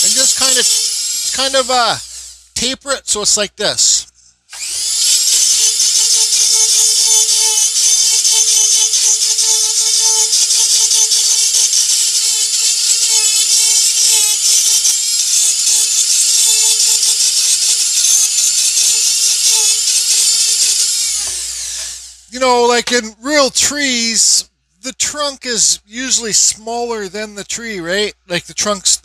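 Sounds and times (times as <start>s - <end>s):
rotary tool grinding wood: 0.0s - 2.6s, 3.8s - 23.0s.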